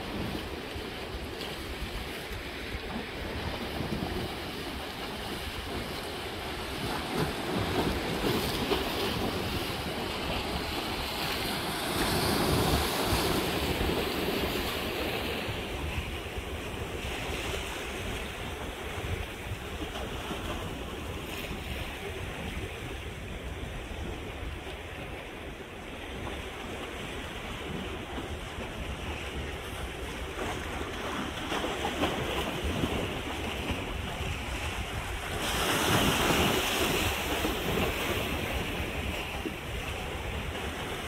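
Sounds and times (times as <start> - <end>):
waves washing against rocks: 0.0 - 41.0.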